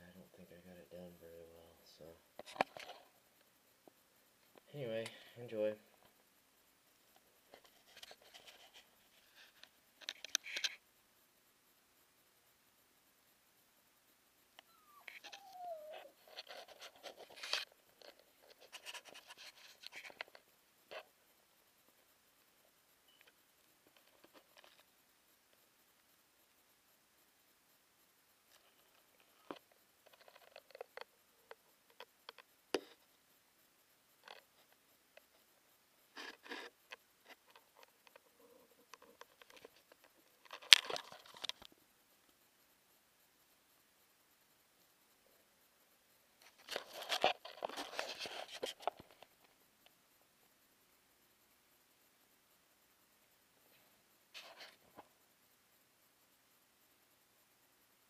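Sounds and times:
short squeak gliding down: 14.7 - 15.9.

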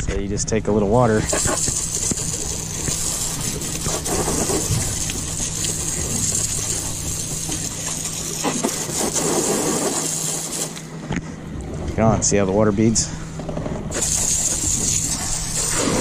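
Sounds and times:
low motor hum: 0.0 - 16.0
hose spray nozzle hissing: 1.3 - 10.9, 13.9 - 16.0.

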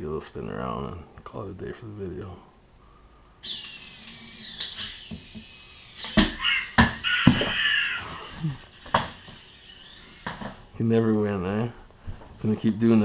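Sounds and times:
small drone motors whining: 3.4 - 10.7.

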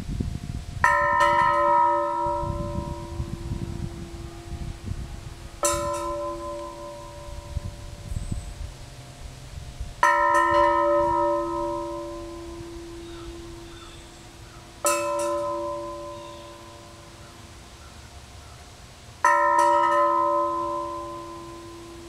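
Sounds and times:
bell ringing: 5.6 - 8.0, 14.8 - 17.1.

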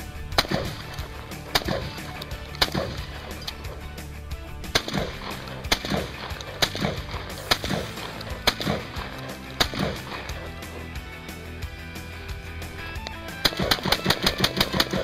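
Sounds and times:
gunshots with echo: 0.3 - 3.8, 4.6 - 10.9, 13.3 - 15.0.

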